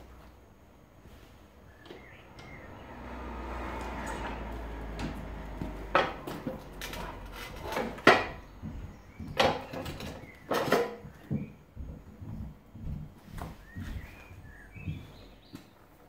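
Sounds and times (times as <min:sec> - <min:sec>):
motorcycle wheel clunks and knocks: 0:04.2 - 0:11.5.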